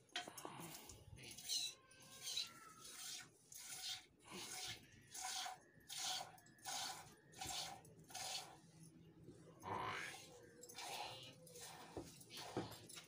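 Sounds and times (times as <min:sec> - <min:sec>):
milk squirting into metal pail: 0:02.8 - 0:08.6.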